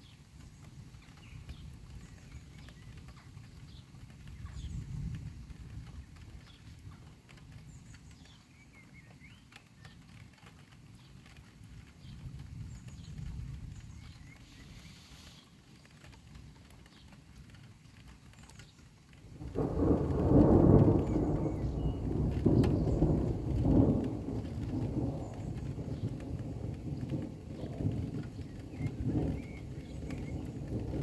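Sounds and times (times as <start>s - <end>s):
thunder rolling: 19.2s - 31.0s.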